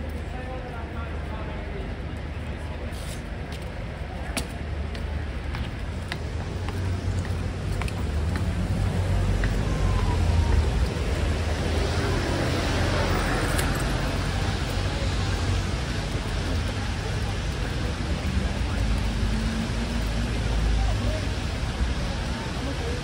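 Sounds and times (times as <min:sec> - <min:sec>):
road traffic rumble: 0:00.0 - 0:23.0
tyre hiss on wet road: 0:02.9 - 0:03.3.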